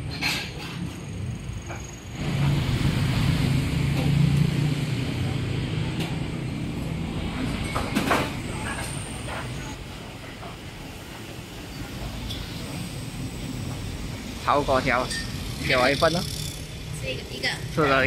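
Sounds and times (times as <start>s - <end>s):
vehicle passing: 2.2s - 9.4s.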